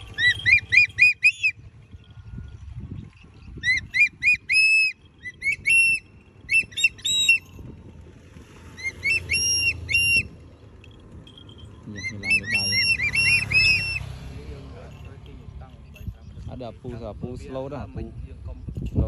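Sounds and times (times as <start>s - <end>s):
eagle calling: 0.0s - 1.7s, 3.5s - 7.6s, 8.7s - 10.5s, 11.8s - 14.2s.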